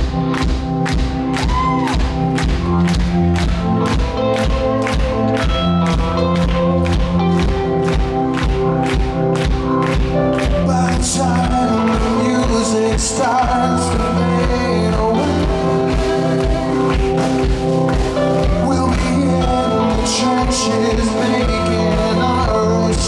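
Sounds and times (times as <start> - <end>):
drum beat: 0.0 - 13.7
electric guitar: 0.0 - 23.0
keyboard: 0.0 - 23.0
man singing: 10.4 - 17.2, 18.3 - 23.0.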